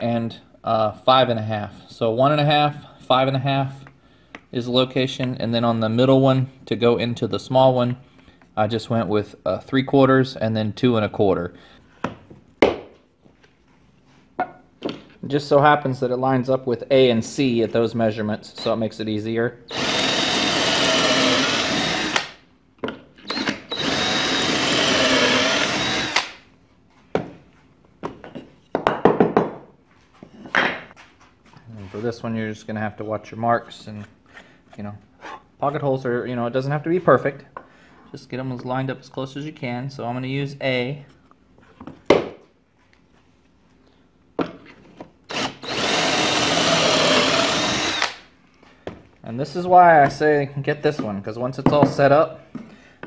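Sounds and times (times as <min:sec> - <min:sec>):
cordless drill boring into wood: 0:19.7 - 0:22.4, 0:23.2 - 0:26.4, 0:45.3 - 0:48.3
sharp knocks of board handling: 0:42.1 - 0:42.4.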